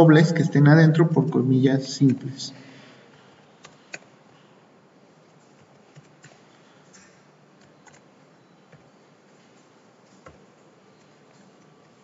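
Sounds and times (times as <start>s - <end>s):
low room hiss: 0.0s - 12.0s
keyboard keystrokes: 3.6s - 4.1s, 5.3s - 8.1s.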